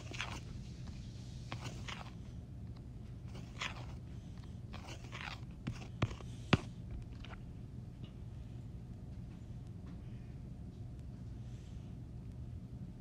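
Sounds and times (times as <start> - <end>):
stylus scraping and tapping touchscreen: 0.0 - 2.3, 3.2 - 7.5
low steady hum: 0.0 - 13.0.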